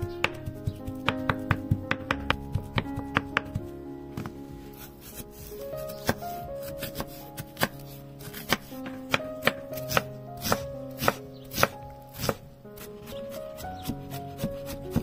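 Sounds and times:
soft background music: 0:00.0 - 0:15.0
knife chopping on cutting board: 0:04.2 - 0:15.0.

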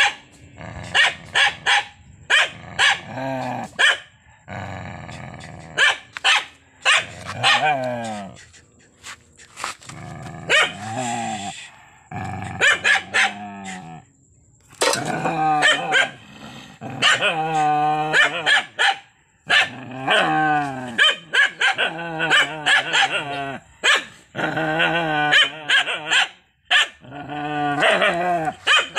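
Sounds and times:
dog growling: 0:00.5 - 0:01.3, 0:02.5 - 0:03.8, 0:04.4 - 0:05.8, 0:07.1 - 0:08.5, 0:09.8 - 0:14.0, 0:15.0 - 0:18.5, 0:19.6 - 0:21.0, 0:24.3 - 0:26.1, 0:27.0 - 0:28.6.

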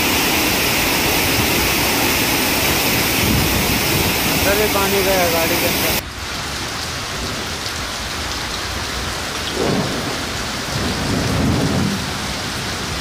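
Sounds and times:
thunder rumbling: 0:00.0 - 0:05.9, 0:09.4 - 0:13.0
heavy rain pouring: 0:00.0 - 0:13.0.

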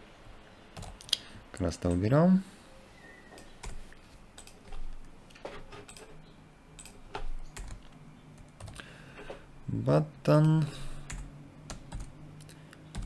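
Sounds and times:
computer keyboard typing: 0:00.8 - 0:01.2, 0:03.4 - 0:06.2, 0:06.8 - 0:09.4, 0:10.4 - 0:13.0.

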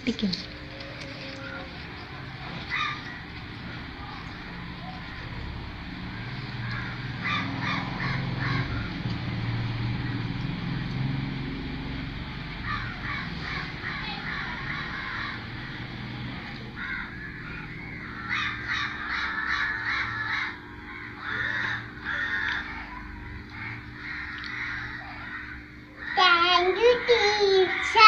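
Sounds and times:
steady low hum: 0:00.0 - 0:28.0
crow cawing: 0:01.3 - 0:05.4, 0:06.1 - 0:09.0, 0:12.6 - 0:28.0.

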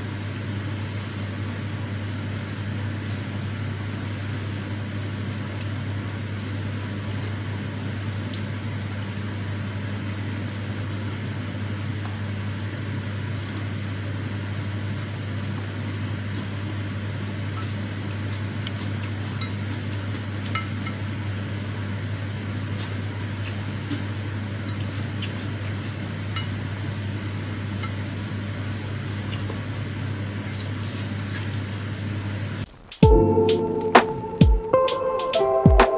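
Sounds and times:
low hum and hiss: 0:00.0 - 0:35.9
wet eating sounds: 0:09.6 - 0:12.4, 0:15.6 - 0:21.5, 0:22.6 - 0:26.6, 0:28.9 - 0:32.0.

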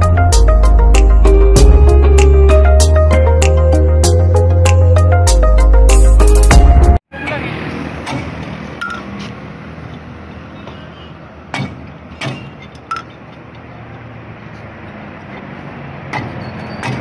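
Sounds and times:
lug wrench clinking: 0:08.8 - 0:09.1, 0:11.6 - 0:13.6.

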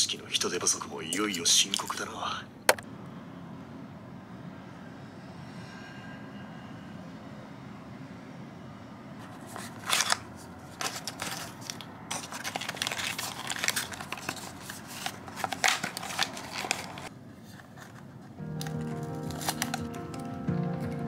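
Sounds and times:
cardboard and foil packaging rustling: 0:09.3 - 0:20.4.

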